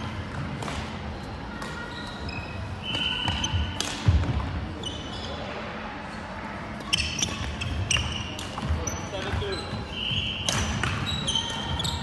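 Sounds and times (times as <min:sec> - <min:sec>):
shoes squeaking on floor: 0:01.2 - 0:03.8, 0:04.8 - 0:05.5, 0:06.8 - 0:12.0
racket striking shuttlecock: 0:10.4 - 0:11.0.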